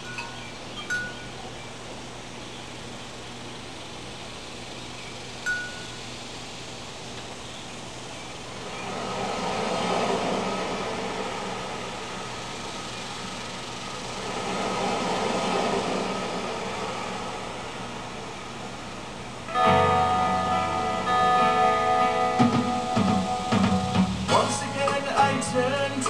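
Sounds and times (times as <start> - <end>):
steady low hum: 0.0 - 26.0
rushing noise: 7.8 - 26.0.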